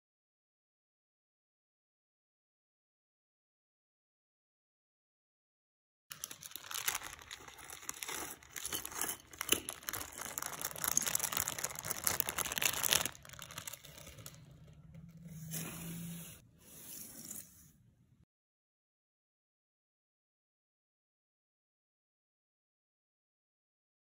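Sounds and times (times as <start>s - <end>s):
plastic bags crinkling and tearing: 6.1s - 15.6s.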